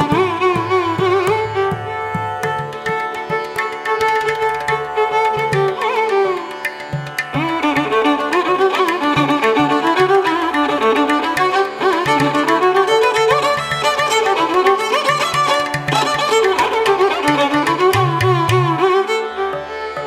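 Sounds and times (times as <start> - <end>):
gliding string melody: 0.0 - 20.0.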